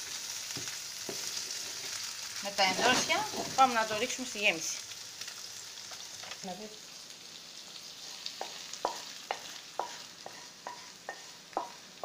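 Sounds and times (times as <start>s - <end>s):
food sizzling in frying pan: 0.0s - 12.0s
wooden spoon scraping a pan: 2.6s - 4.0s, 8.0s - 11.8s.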